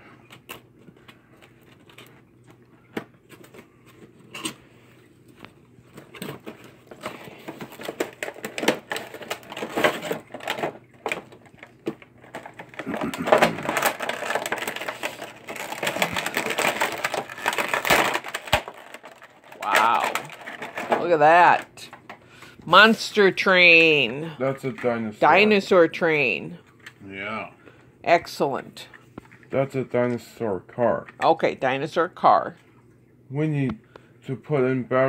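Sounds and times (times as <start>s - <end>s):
plastic packaging crinkling: 5.2s - 22.1s.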